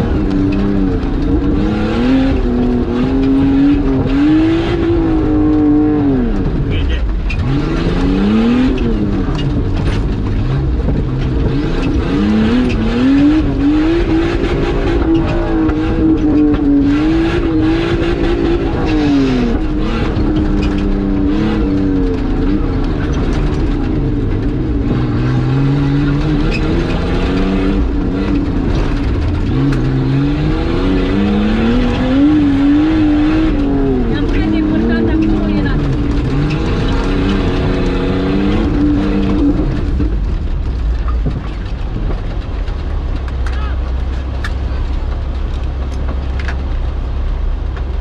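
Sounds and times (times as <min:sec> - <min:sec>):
engine revving: 0:00.0 - 0:46.6
knocks and rattles over bumps: 0:00.0 - 0:48.0.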